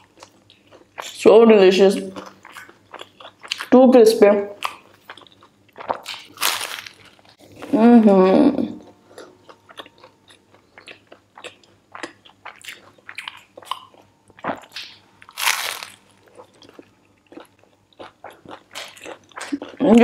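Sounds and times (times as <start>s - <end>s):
crunchy chewing: 2.1s - 3.7s, 4.6s - 7.8s, 8.8s - 19.8s.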